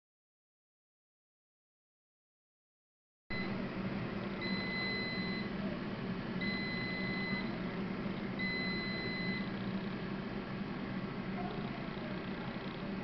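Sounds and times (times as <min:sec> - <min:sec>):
air fryer alarm beeping: 0:03.3 - 0:05.6, 0:06.4 - 0:07.7, 0:08.4 - 0:09.6
oven fan running: 0:03.3 - 0:13.0.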